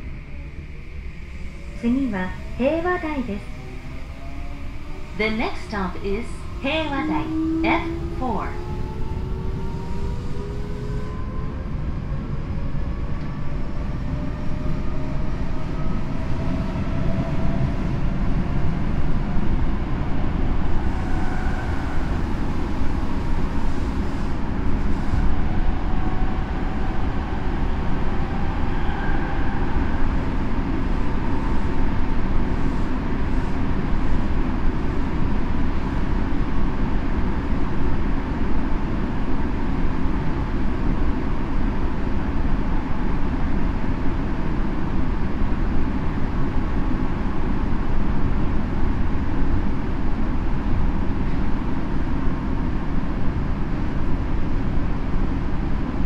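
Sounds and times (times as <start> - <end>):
faint whine: 0.0 - 11.7
subway wheels rumbling on rail: 0.0 - 56.0.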